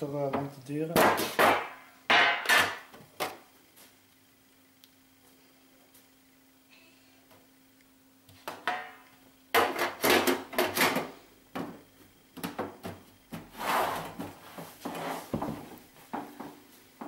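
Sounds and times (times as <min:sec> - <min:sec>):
rubbing and scraping handling noises: 0:12.8 - 0:16.8.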